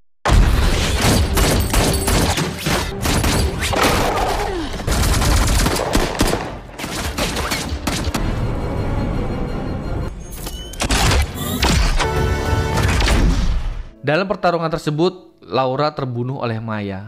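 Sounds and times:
dramatic film score: 0.3s - 14.8s
rapid rifle gunfire: 4.8s - 8.1s.

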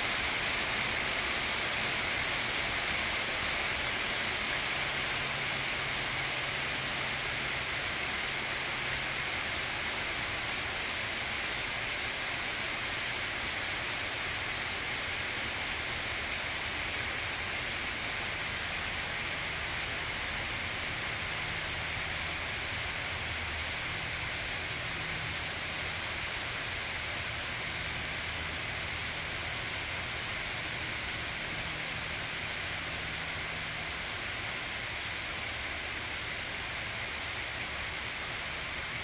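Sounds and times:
rain falling on trees and lawn: 0.0s - 39.0s.

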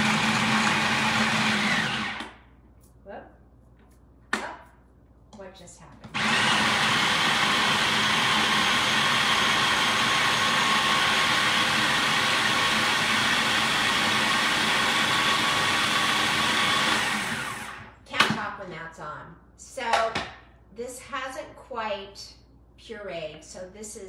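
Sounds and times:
food processor motor whine: 0.0s - 2.4s, 6.1s - 17.9s.

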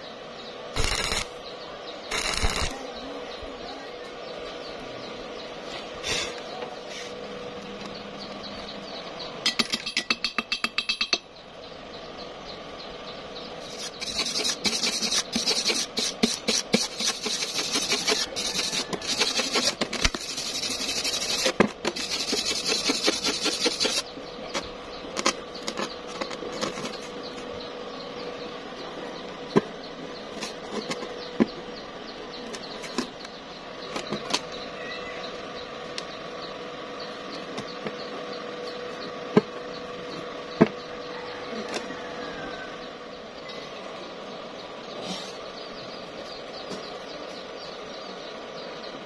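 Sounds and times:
wire brush scratching metal: 0.8s - 1.3s, 2.1s - 2.8s, 13.6s - 24.1s.

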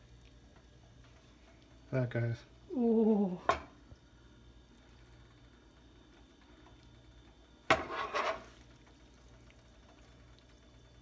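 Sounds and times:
faint low hum: 0.0s - 11.0s
metal fork scraping in a skillet: 7.7s - 8.6s.

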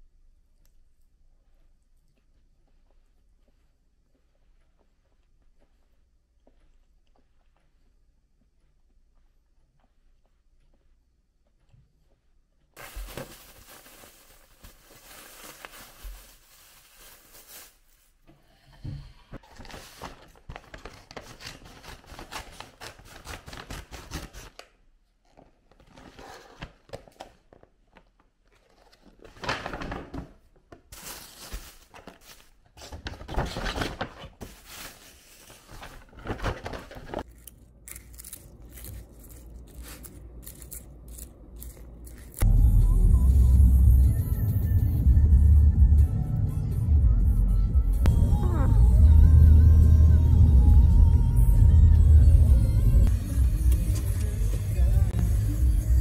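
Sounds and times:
plastic packaging crinkling: 12.8s - 18.2s, 31.0s - 42.4s.

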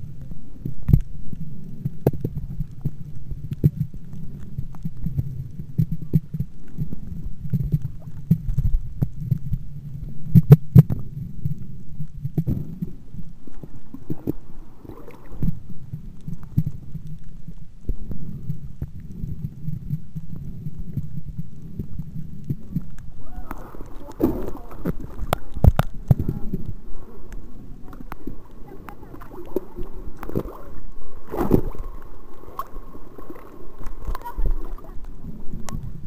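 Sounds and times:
underwater rumble: 0.0s - 36.0s
underwater knocks and clicks: 0.2s - 36.0s.

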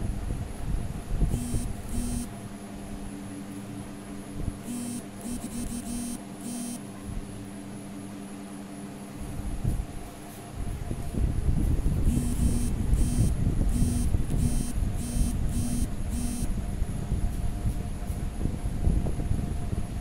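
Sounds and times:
electric hair clipper buzzing: 1.3s - 2.3s, 4.7s - 6.8s, 12.1s - 16.5s.

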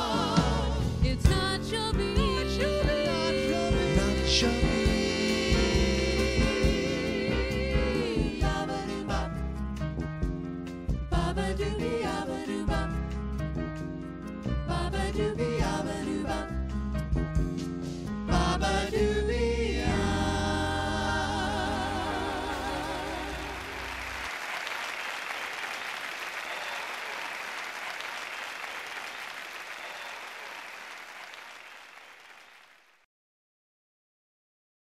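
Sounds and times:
band playing: 0.0s - 11.2s
audience applause: 23.6s - 33.0s.

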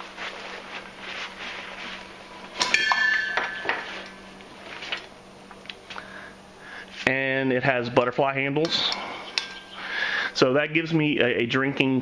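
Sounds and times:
metal mugs clinking: 2.6s - 4.2s, 8.6s - 9.8s
metal cups scraping: 8.7s - 9.9s.

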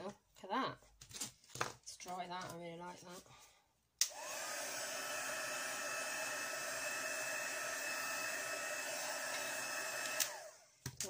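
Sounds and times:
heat tool blowing air: 4.0s - 10.7s.

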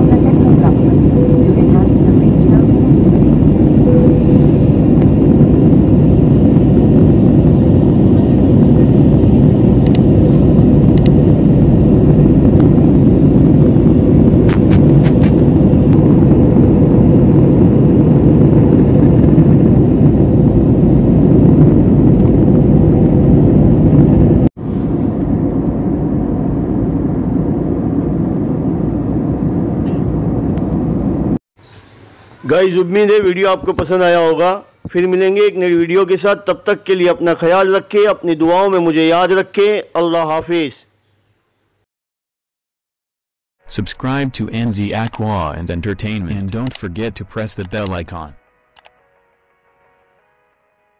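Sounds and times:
faint steady hum: 0.0s - 19.5s
airliner engines and airflow rush: 0.0s - 32.5s.

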